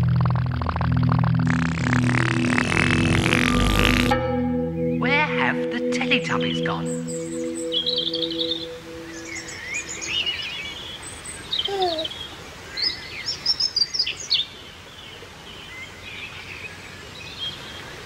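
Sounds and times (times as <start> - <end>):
held musical chord: 1.2 - 10.4
songbirds chirping and singing: 6.2 - 18.0.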